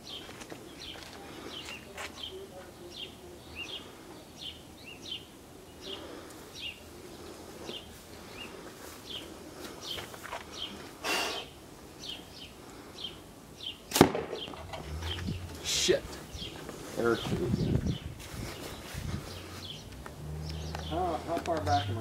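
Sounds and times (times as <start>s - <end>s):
small songbird chirping: 0.0s - 22.0s
sharp crack: 13.9s - 14.9s.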